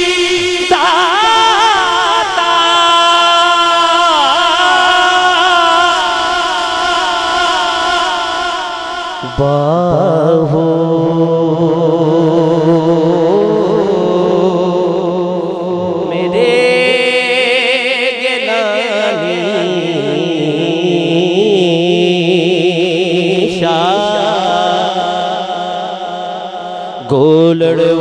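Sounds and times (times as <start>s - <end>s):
man singing into microphone: 0.0s - 28.0s
steady low drone note: 15.2s - 17.4s.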